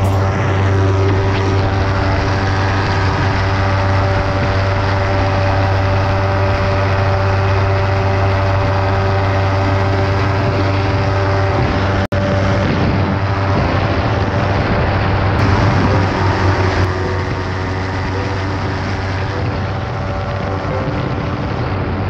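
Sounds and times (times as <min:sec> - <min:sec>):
aircraft engine and propeller: 0:00.0 - 0:22.0
wind rushing: 0:00.0 - 0:22.0.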